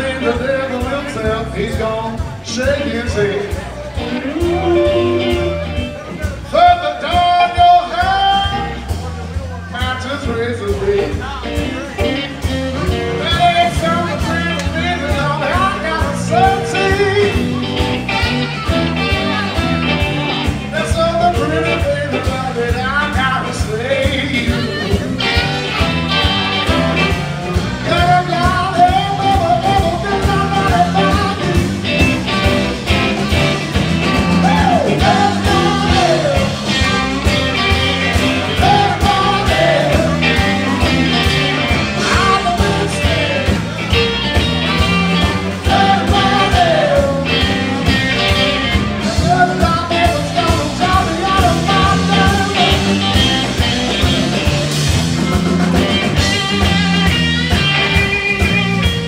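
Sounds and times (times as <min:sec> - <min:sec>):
drum kit: 0:00.0 - 0:59.0
electric bass: 0:00.0 - 0:59.0
electric guitars: 0:00.0 - 0:59.0
saxophone: 0:04.2 - 0:06.1.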